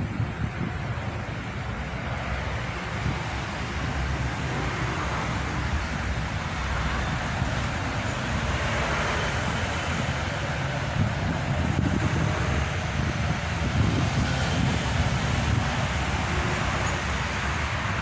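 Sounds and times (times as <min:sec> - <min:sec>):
traffic of passing vehicles: 0:00.0 - 0:18.0.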